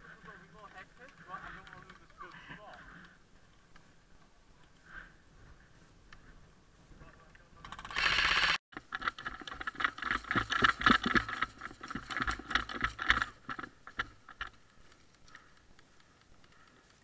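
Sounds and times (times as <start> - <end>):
airsoft rifle burst: 7.6 - 8.6
gear rattling: 7.6 - 17.0
footsteps: 8.8 - 17.0.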